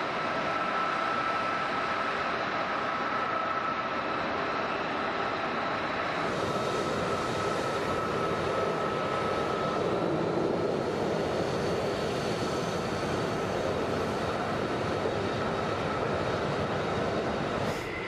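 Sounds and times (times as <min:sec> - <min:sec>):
jet engines at taxi power: 0:00.0 - 0:18.0.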